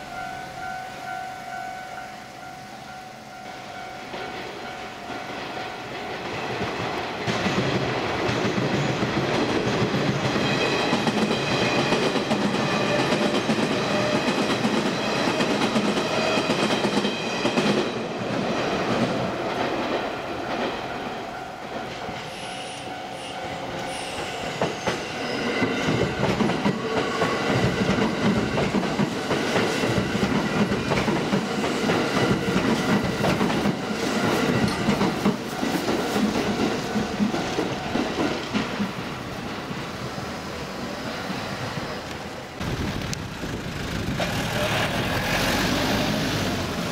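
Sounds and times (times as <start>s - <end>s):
train wheels clattering over rail joints: 25.6s - 39.6s.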